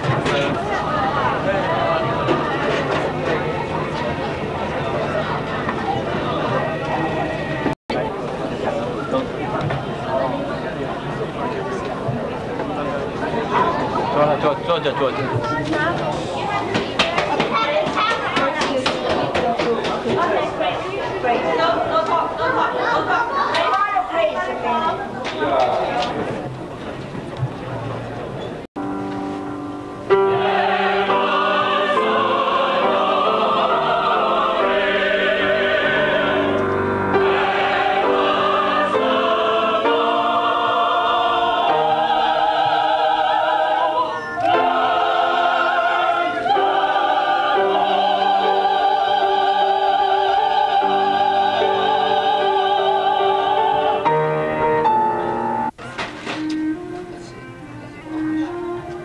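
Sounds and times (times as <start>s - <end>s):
mixed choir singing: 0.0s - 7.8s, 30.1s - 55.7s.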